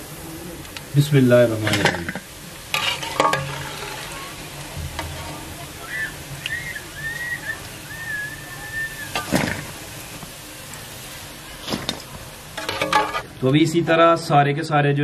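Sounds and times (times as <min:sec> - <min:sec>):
oil sizzling in a pan: 0:00.0 - 0:14.3.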